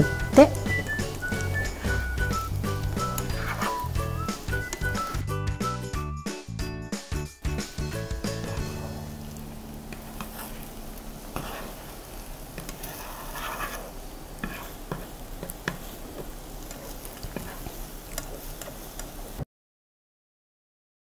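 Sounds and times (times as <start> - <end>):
egg sizzling in a frying pan: 0.0 - 5.8, 7.4 - 19.4
spatula scraping a pan: 0.1 - 5.2, 7.6 - 19.4
spatula tapping a pan: 0.5 - 5.2, 12.5 - 19.2.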